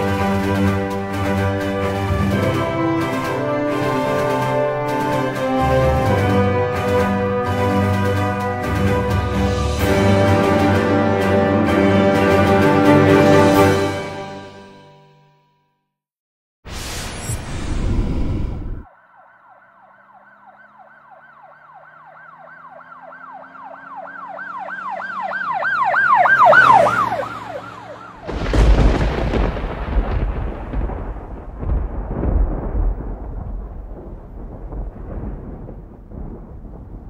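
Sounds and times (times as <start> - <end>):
siren wailing: 0.1 - 13.1, 18.8 - 28.6
deep rumble with cracks: 28.2 - 37.0.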